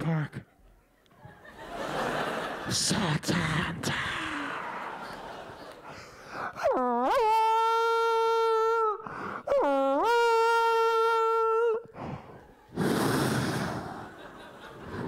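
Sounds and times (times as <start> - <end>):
man imitating horn with voice: 6.6 - 11.9.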